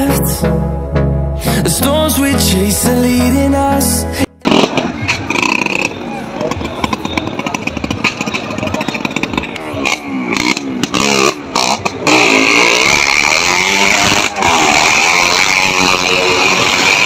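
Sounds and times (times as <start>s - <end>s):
motorcycle engines revving: 4.4s - 17.0s.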